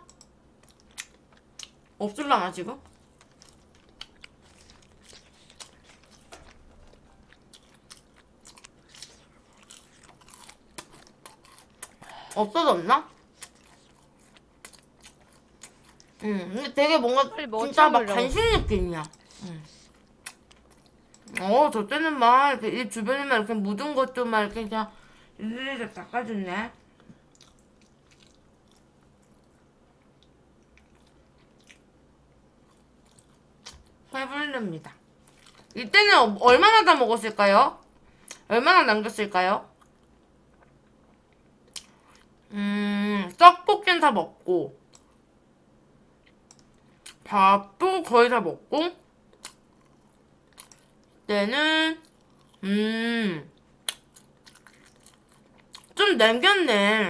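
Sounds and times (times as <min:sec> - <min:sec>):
chewing crunchy food: 0:02.8 - 0:16.2, 0:19.0 - 0:21.4, 0:26.8 - 0:34.0, 0:35.1 - 0:35.8, 0:39.7 - 0:42.4, 0:44.8 - 0:45.2, 0:49.3 - 0:51.3, 0:52.0 - 0:52.6, 0:53.5 - 0:56.0.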